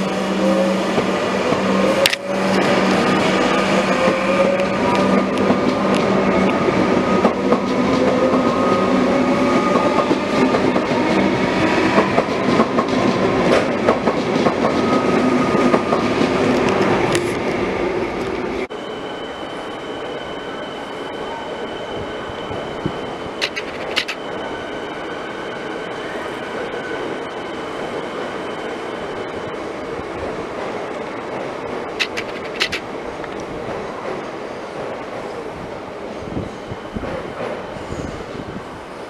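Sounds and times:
train wheels clattering on rails: 0:09.5 - 0:17.4, 0:23.4 - 0:24.2, 0:30.6 - 0:32.9.

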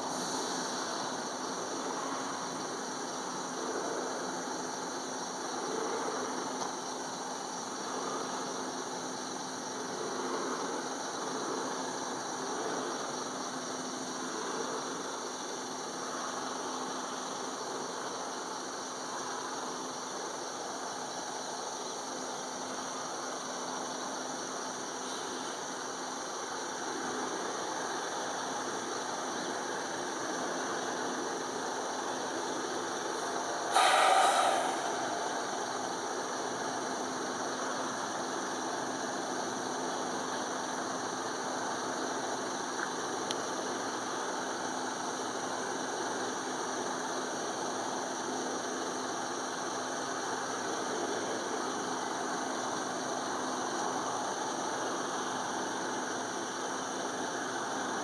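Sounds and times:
background hiss: 0:00.0 - 0:58.0
engine drone: 0:26.5 - 0:44.2
loud brief sound: 0:33.7 - 0:36.0.

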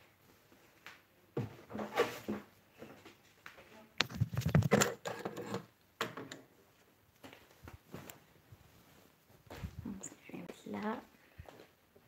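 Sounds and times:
objects handled near microphone: 0:04.0 - 0:06.5.

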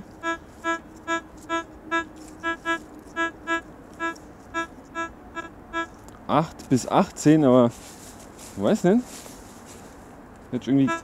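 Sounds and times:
metal detector low beeps: 0:00.2 - 0:06.0
person talking: 0:10.5 - 0:11.0.

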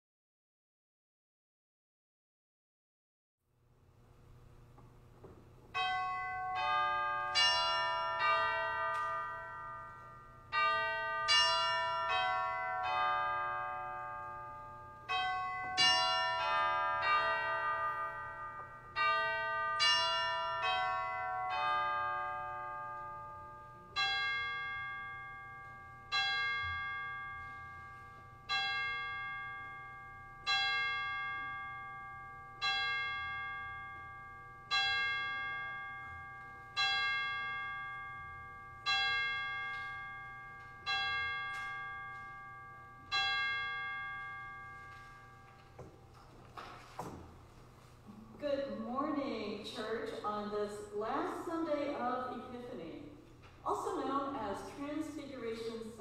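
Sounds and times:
church bell tolling: 0:05.6 - 0:56.0
church bells chiming a tune: 0:05.7 - 0:48.1.

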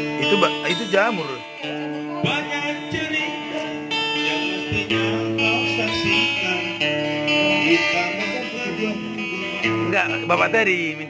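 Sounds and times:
strummed guitar chords: 0:00.0 - 0:11.0.

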